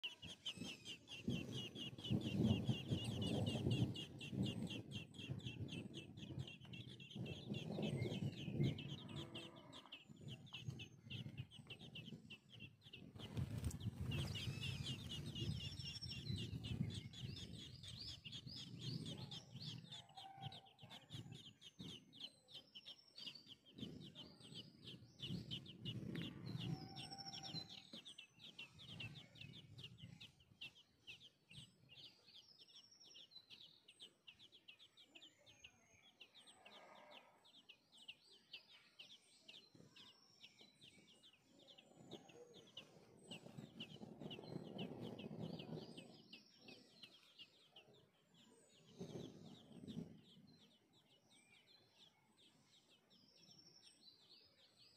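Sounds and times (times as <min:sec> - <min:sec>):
nestling birds cheeping: 0:00.0 - 0:54.9
deeper bird calls: 0:06.4 - 0:11.9.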